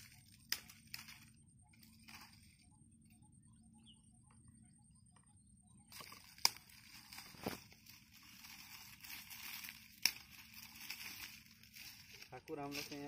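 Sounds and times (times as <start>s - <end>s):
twigs snapping: 0.0s - 2.6s, 5.9s - 13.0s
dry fronds rustling: 0.0s - 3.2s, 5.9s - 13.0s.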